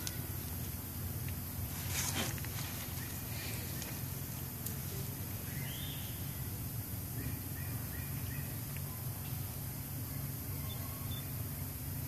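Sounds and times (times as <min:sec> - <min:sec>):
steady low rumble: 0:00.0 - 0:12.0
faint high chirps: 0:04.9 - 0:11.7.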